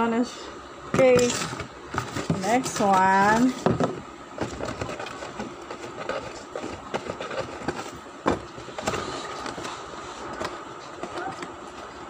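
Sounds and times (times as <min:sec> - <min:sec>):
cardboard box scraping and rustling: 0:01.2 - 0:03.7, 0:04.4 - 0:11.4.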